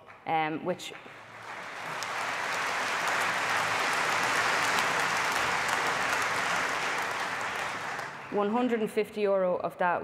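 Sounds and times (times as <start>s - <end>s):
audience applauding: 1.1s - 8.6s.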